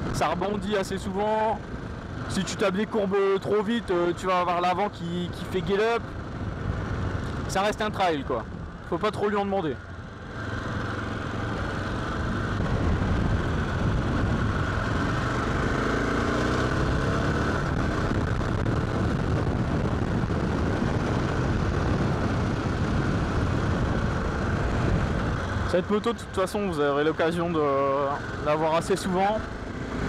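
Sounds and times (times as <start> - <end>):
motorcycle engine running: 0.0 - 4.5, 5.4 - 30.0
wind rush on microphone: 5.3 - 8.9, 9.9 - 30.0.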